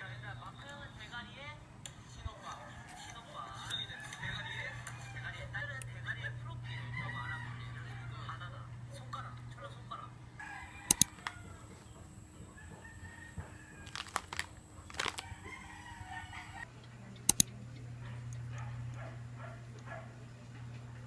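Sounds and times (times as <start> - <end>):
rooster crowing: 2.4 - 8.7, 10.3 - 16.7.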